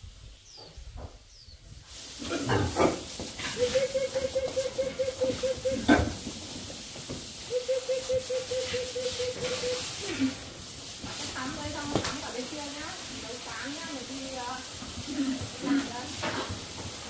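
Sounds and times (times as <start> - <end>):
hose spraying water on concrete: 1.7 - 17.0
pigs squealing: 3.6 - 6.2.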